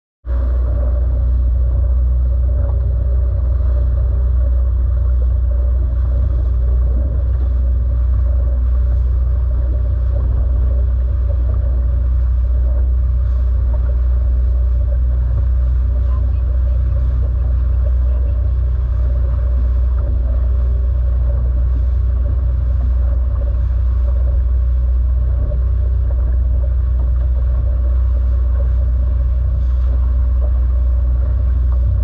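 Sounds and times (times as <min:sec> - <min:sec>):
boat engine droning: 0:00.2 - 0:32.0
water splashing along hull: 0:00.2 - 0:32.0.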